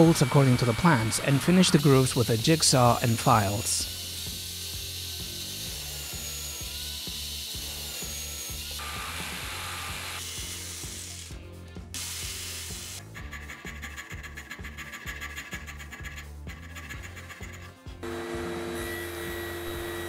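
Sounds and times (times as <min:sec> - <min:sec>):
drill press boring plywood: 0:00.0 - 0:11.3, 0:18.0 - 0:20.0
jigsaw cutting plywood: 0:00.0 - 0:11.3, 0:16.8 - 0:20.0.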